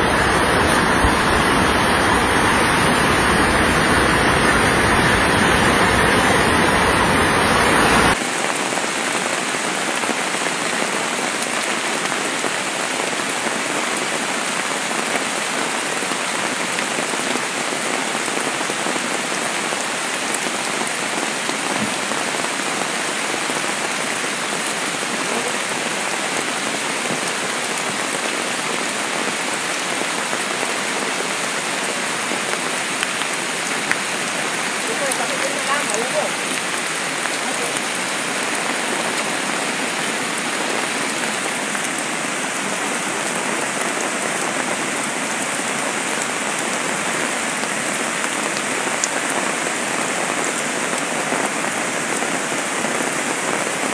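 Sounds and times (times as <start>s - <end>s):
heavy rain hissing: 0.0s - 53.9s
river rushing: 0.0s - 53.9s.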